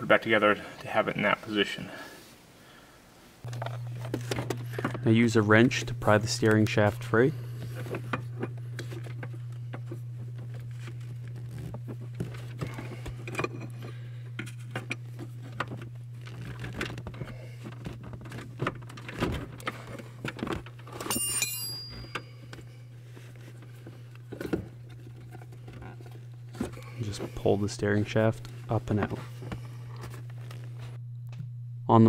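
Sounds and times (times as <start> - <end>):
steady low hum: 0.0 - 32.0
wrench clinking against metal: 20.9 - 22.6
bright metallic ring: 21.0 - 23.0.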